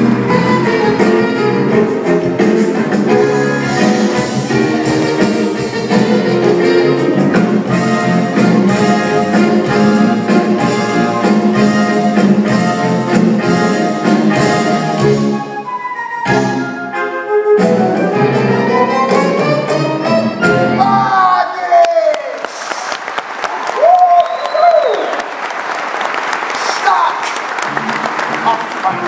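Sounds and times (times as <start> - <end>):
orchestra with brass: 0.0 - 21.2.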